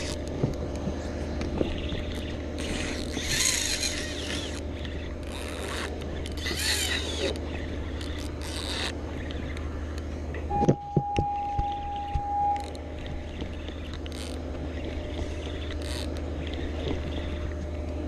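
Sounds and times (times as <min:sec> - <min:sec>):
fishing reel hissing and rubbing: 0:00.0 - 0:00.2, 0:02.1 - 0:09.5, 0:13.6 - 0:14.4, 0:15.4 - 0:17.3
steady low hum: 0:00.0 - 0:18.0
steady high tone: 0:10.5 - 0:13.4.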